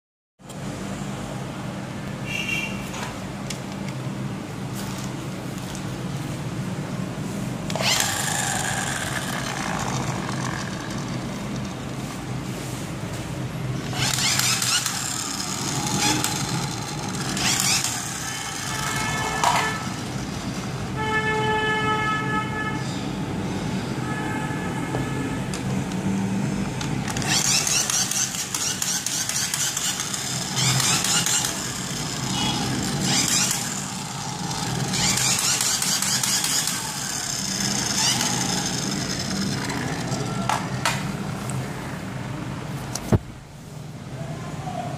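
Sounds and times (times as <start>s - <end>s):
toy whirring bursts: 7.7s - 11.9s, 13.8s - 20.6s, 27.0s - 40.8s.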